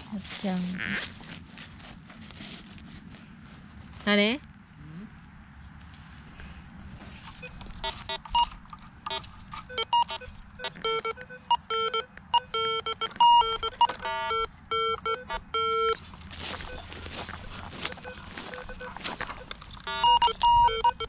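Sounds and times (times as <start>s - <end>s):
rustling: 0.0s - 4.6s, 5.7s - 11.0s, 15.8s - 20.8s
metal detector beeps: 7.3s - 21.0s.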